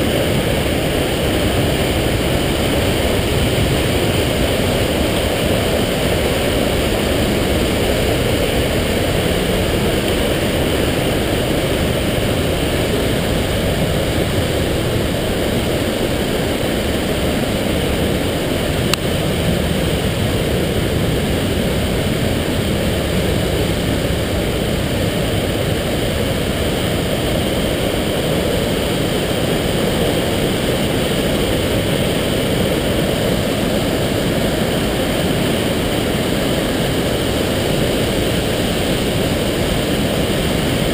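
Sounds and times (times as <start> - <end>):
white water rushing: 0.0 - 40.9.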